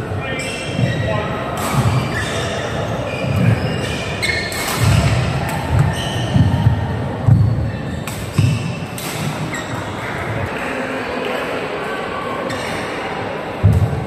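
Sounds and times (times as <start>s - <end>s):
rackets striking shuttlecock: 4.4s - 6.6s, 8.0s - 9.5s.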